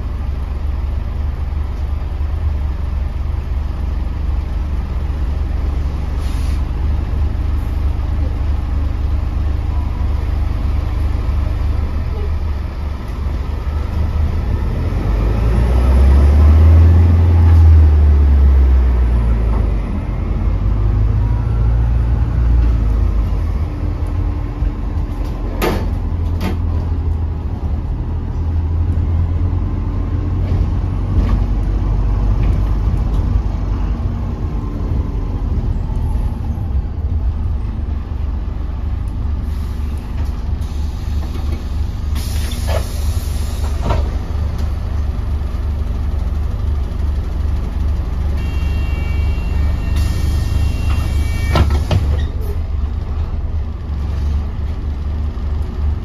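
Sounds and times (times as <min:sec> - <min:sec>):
bus driveline drone: 0:00.0 - 0:56.0
short hiss: 0:06.2 - 0:06.6.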